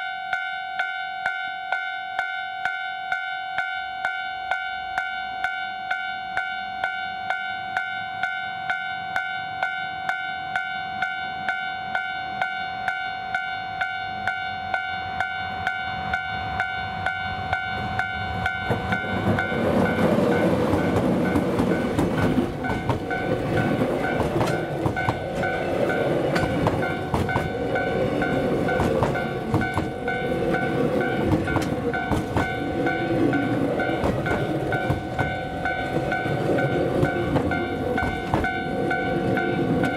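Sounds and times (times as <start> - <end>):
level crossing bell ringing: 0.0 - 39.9
diesel locomotive passing: 0.1 - 39.9
train wagons clattering over rails: 12.9 - 39.9.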